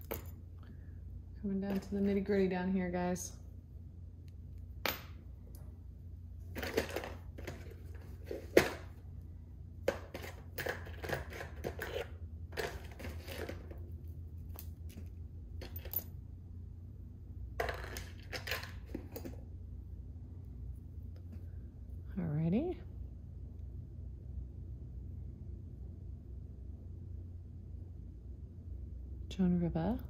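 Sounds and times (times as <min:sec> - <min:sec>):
jewelry clinking: 0:14.5 - 0:16.2.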